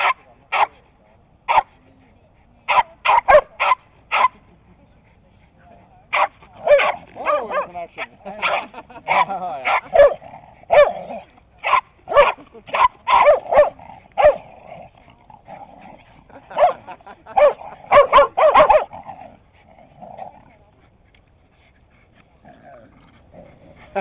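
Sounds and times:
dog barking: 0.0s - 0.8s, 1.5s - 1.7s, 2.7s - 4.4s, 6.1s - 7.7s, 8.4s - 11.0s, 11.6s - 14.4s, 16.5s - 19.0s.

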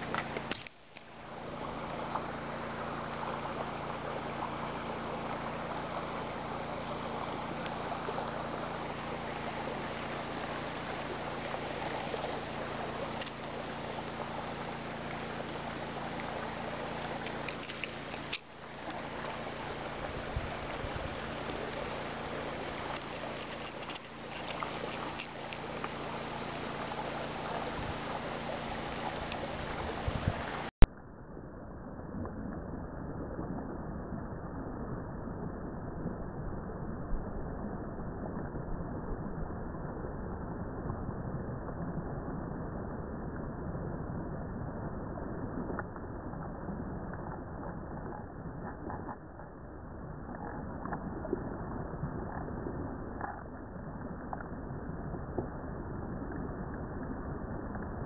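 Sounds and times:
rushing water: 0.0s - 30.8s
low even hum: 0.0s - 58.0s.

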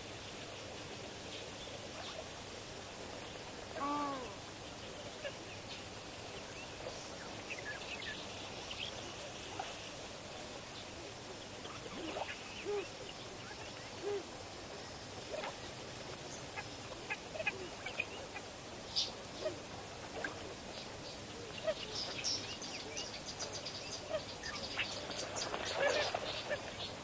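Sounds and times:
steady hiss: 0.0s - 27.0s
waterbirds low calls: 10.9s - 27.0s.

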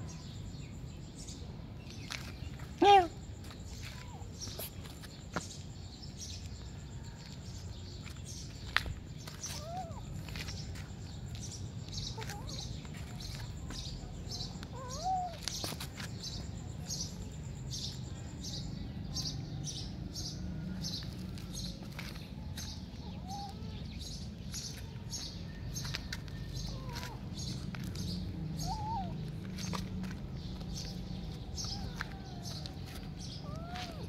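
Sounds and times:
kittens meowing: 9.4s - 10.6s, 14.6s - 15.7s, 22.9s - 24.8s, 26.5s - 29.8s, 30.5s - 34.0s.

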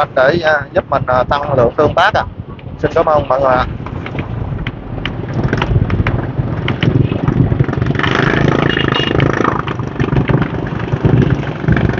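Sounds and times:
rush of noise: 0.0s - 11.9s
motorbike engine running: 3.9s - 11.9s.

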